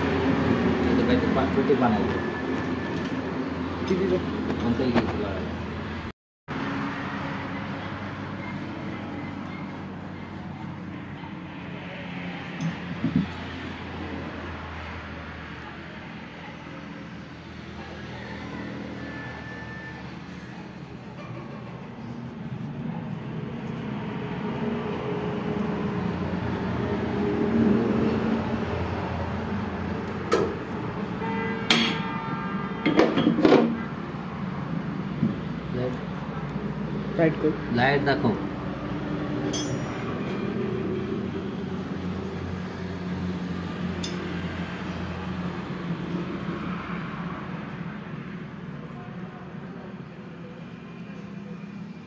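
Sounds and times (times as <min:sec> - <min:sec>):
passing vehicle engine rumble: 0:00.0 - 0:52.0
metal tools clinking: 0:31.7 - 0:32.3, 0:39.5 - 0:40.2, 0:44.0 - 0:44.3.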